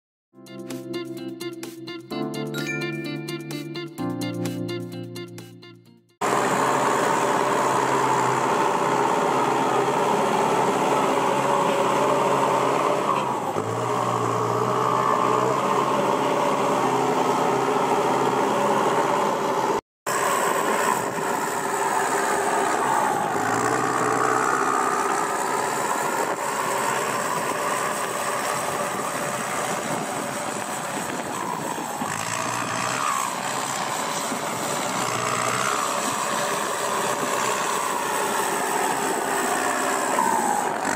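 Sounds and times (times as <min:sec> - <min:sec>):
tractor diesel engine revving: 0:06.2 - 0:40.9.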